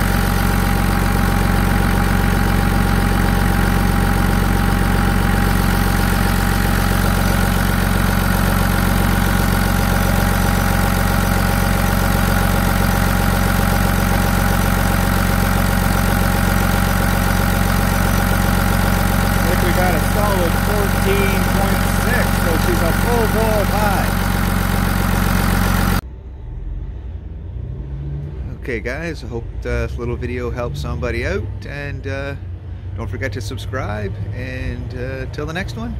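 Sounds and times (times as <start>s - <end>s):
diesel engine idling: 0.0s - 27.5s.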